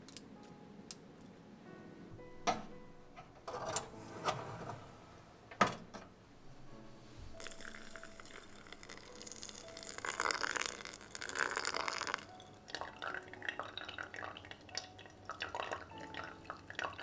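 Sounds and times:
water pouring onto coffee grounds: 0:07.4 - 0:17.0.

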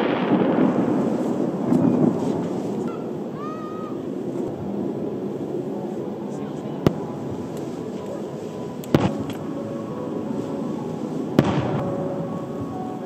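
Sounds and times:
fireworks booming: 0:00.0 - 0:05.0, 0:06.8 - 0:07.4, 0:08.8 - 0:09.5, 0:11.2 - 0:12.9.

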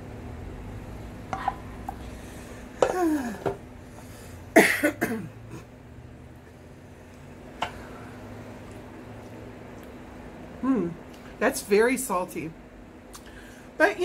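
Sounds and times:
woman coughing: 0:04.6 - 0:05.6.

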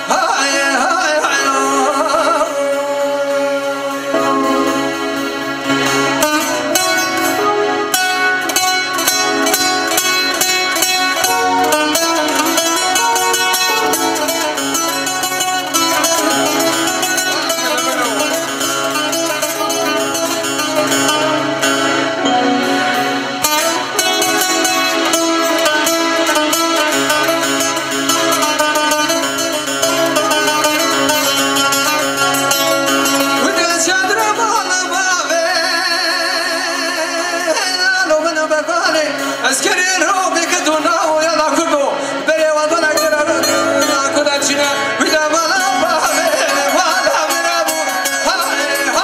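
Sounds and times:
keyboard accompaniment: 0:00.0 - 0:49.0
long-necked lute picked quickly: 0:00.0 - 0:49.0.

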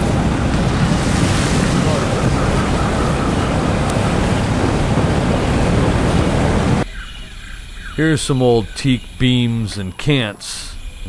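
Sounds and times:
wind on microphone: 0:00.0 - 0:06.8.

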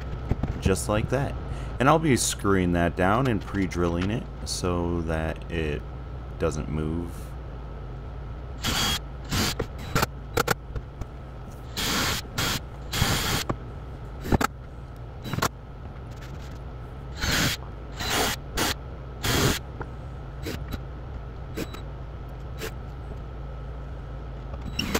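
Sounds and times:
cordless drill bursts: 0:08.6 - 0:09.6, 0:11.7 - 0:13.4, 0:17.2 - 0:19.6.

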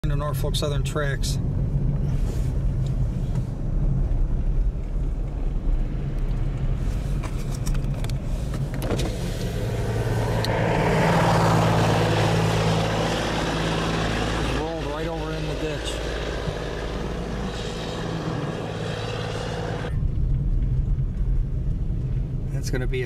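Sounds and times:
car engine hum: 0:00.1 - 0:23.0
tyres on snowy road: 0:00.1 - 0:23.0
rushing noise: 0:08.2 - 0:22.7.

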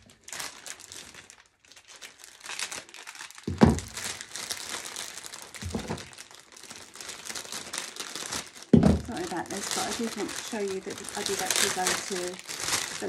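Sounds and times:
cellophane wrapping crinkling: 0:00.0 - 0:13.0
dull thump: 0:03.5 - 0:03.9.

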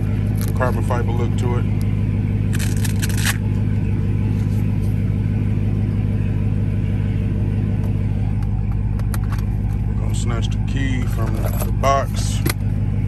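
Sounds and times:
car engine idling: 0:00.0 - 0:13.0.

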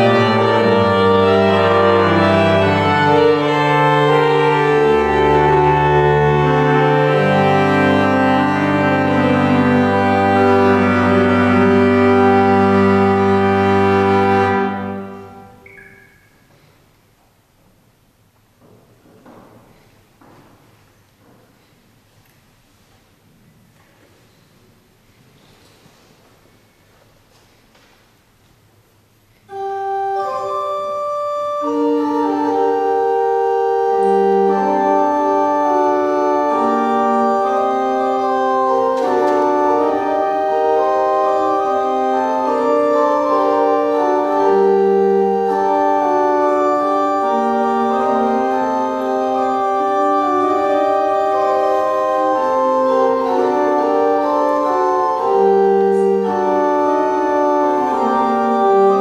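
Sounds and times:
pipe organ playing: 0:00.0 - 0:16.6, 0:29.5 - 0:59.0.

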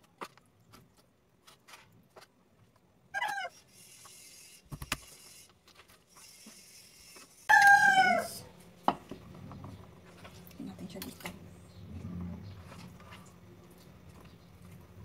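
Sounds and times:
animal call falling in pitch: 0:07.5 - 0:08.4.

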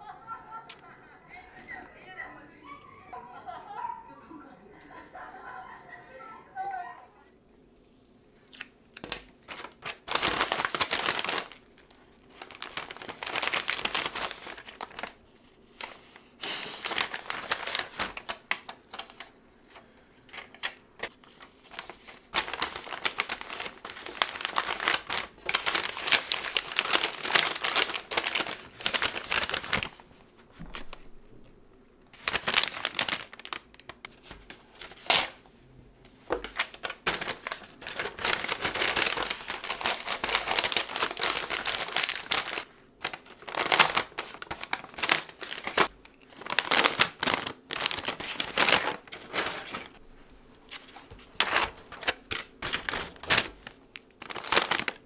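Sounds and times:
paper bags rustling and crinkling: 0:09.0 - 0:31.4, 0:32.1 - 0:35.5, 0:36.1 - 0:55.0.

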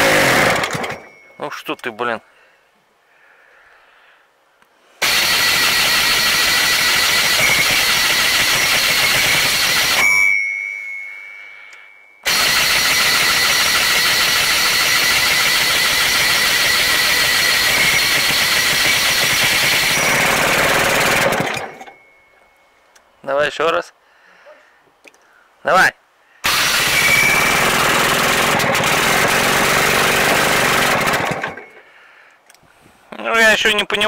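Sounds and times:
diesel engine starter cranking: 0:00.0 - 0:01.1, 0:12.3 - 0:22.0, 0:26.5 - 0:31.8.

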